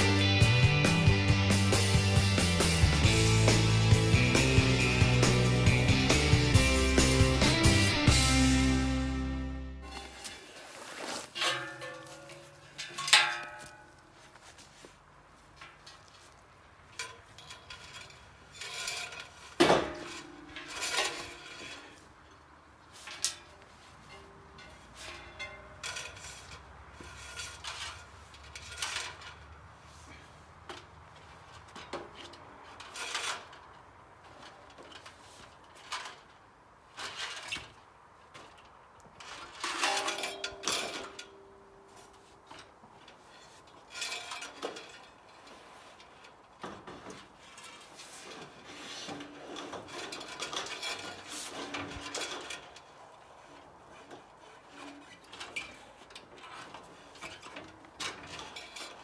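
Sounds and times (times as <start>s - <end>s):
tools scraping and knocking: 9.8s - 59.0s
metal ringing clank: 11.4s - 14.0s, 39.7s - 42.0s.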